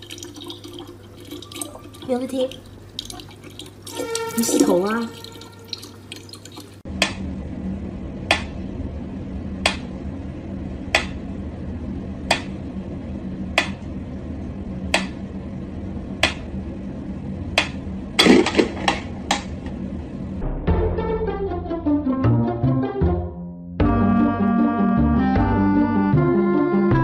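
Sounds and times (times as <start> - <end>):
steady low hum: 4.8 - 21.4.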